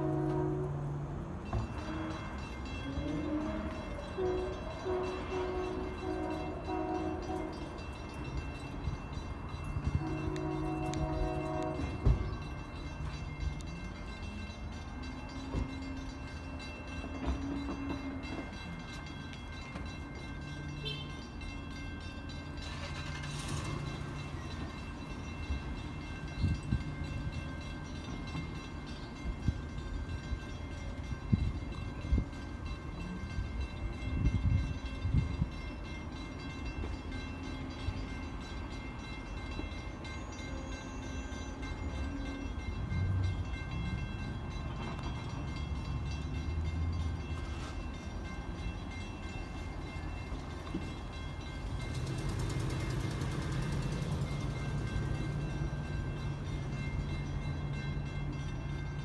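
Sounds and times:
distant locomotive horn blasts: 0.0s - 8.2s, 9.7s - 12.6s, 16.9s - 19.1s, 20.7s - 21.5s
train low rumble: 0.0s - 59.0s.

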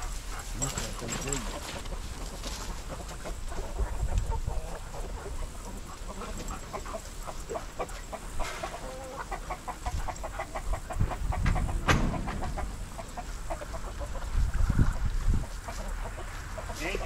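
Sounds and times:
chickens clucking: 0.0s - 17.0s
low rumble: 11.4s - 15.2s.

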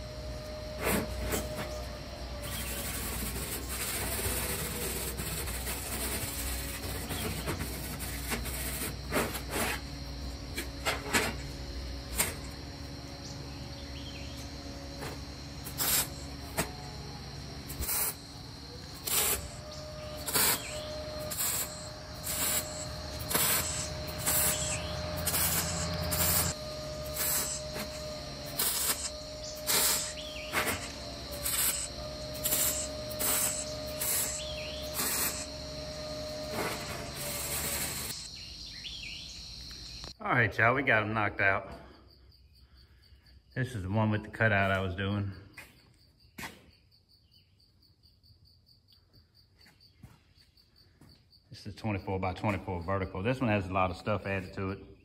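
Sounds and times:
welder crackling bursts: 2.4s - 8.9s, 15.6s - 16.7s, 17.7s - 38.3s.

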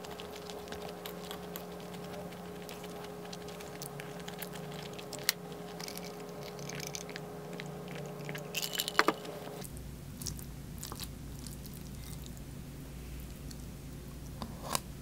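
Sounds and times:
spoon stirring rice in bowl: 0.0s - 9.6s
chewing: 0.0s - 12.5s.

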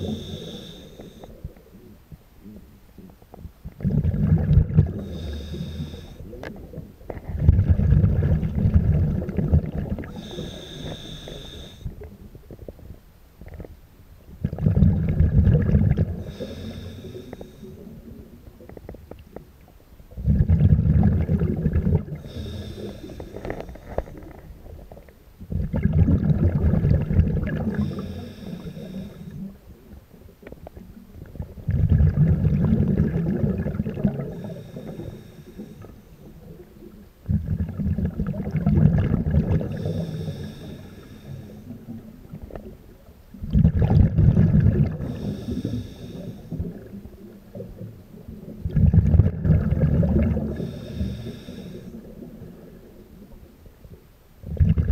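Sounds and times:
hissing regulator inhale: 0.0s - 1.6s, 4.9s - 6.4s, 10.1s - 12.0s, 16.0s - 18.1s, 22.1s - 24.4s, 27.5s - 29.7s, 34.0s - 36.3s, 39.6s - 41.9s, 44.9s - 46.9s, 50.4s - 52.2s
exhaled bubbles rumbling: 0.0s - 13.7s, 14.3s - 19.3s, 20.1s - 54.9s.

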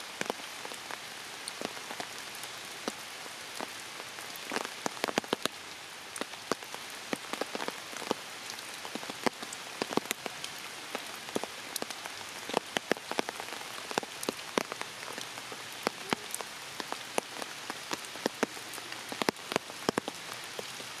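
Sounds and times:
steady rain hiss: 0.0s - 21.0s
raindrop hits close by: 6.2s - 20.8s.

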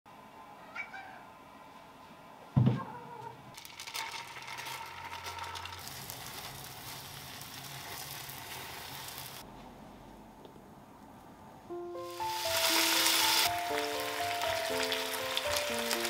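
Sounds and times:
egg sizzling in a frying pan: 3.6s - 9.4s, 12.0s - 16.0s.

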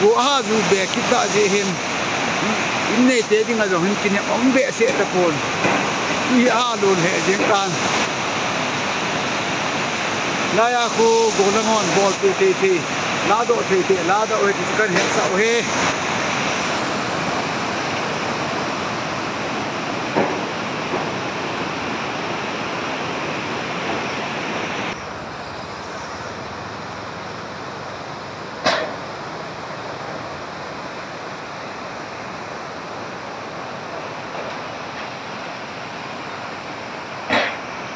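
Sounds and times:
floodwater rushing: 0.0s - 37.9s.

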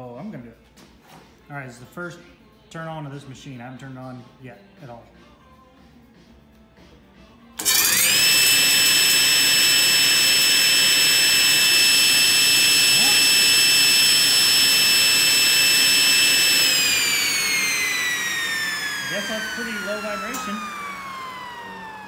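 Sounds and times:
table saw whining: 7.6s - 22.0s.

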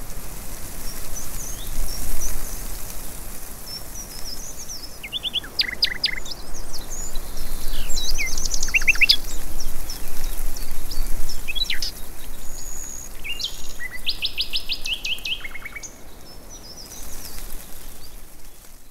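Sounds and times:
small birds chirping: 0.6s - 18.9s.

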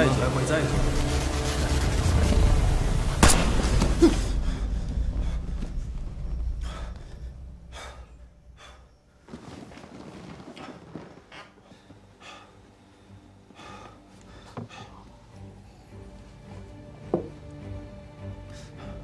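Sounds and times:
faint low drone: 0.0s - 9.2s, 14.3s - 19.0s
man breathing heavily: 3.8s - 9.3s, 10.6s - 16.7s, 18.2s - 19.0s.

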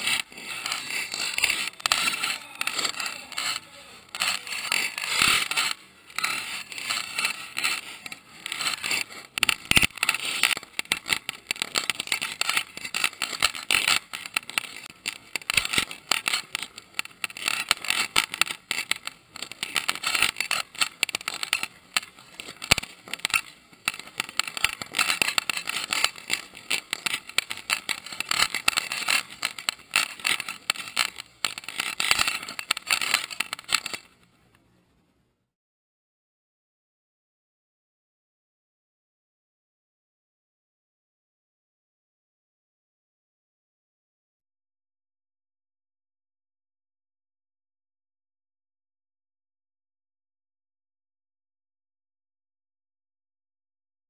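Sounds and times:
fireworks hissing and crackling: 0.0s - 34.2s.

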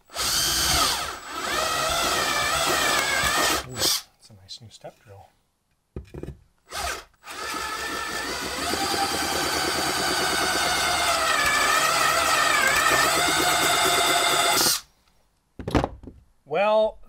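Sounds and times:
cordless drill boring: 0.0s - 4.0s, 6.7s - 14.9s.

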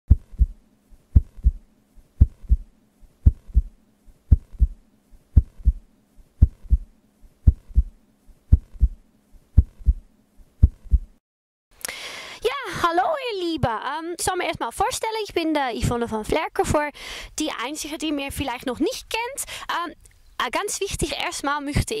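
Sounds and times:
heartbeat thumps: 0.1s - 9.0s, 9.6s - 11.2s
faint low hum: 0.1s - 11.2s.

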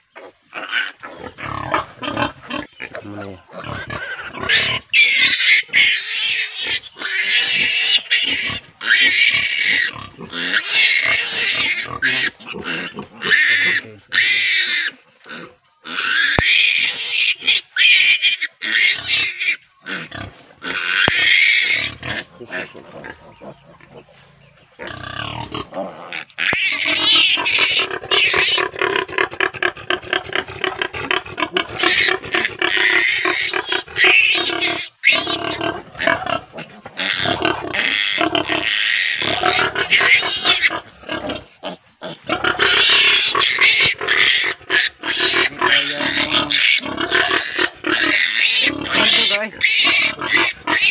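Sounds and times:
piglet squealing shrilly: 3.7s - 15.0s, 15.9s - 22.3s, 26.4s - 28.6s, 32.8s - 36.2s, 37.0s - 40.8s, 42.4s - 50.9s.

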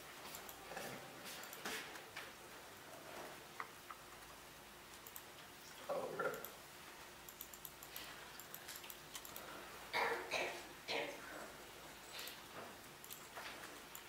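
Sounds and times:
laptop keys clicking: 4.9s - 5.4s, 7.3s - 9.5s, 13.0s - 14.0s.

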